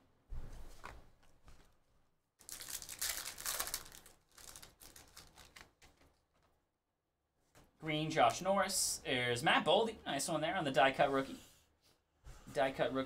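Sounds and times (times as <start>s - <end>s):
plastic wrappers crinkling: 2.4s - 6.5s.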